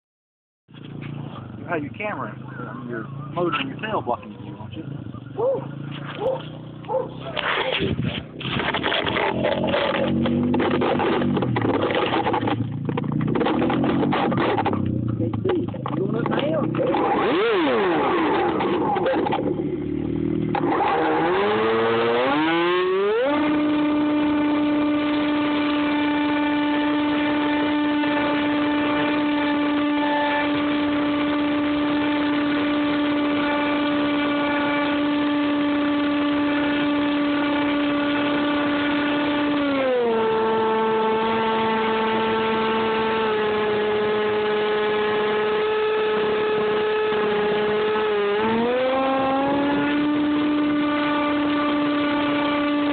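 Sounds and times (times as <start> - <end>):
electric motor and propeller whine: 16.6 - 52.9.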